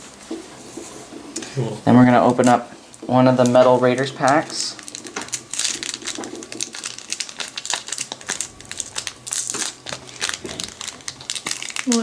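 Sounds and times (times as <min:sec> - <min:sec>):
foil wrapper crinkling: 0:03.2 - 0:12.0.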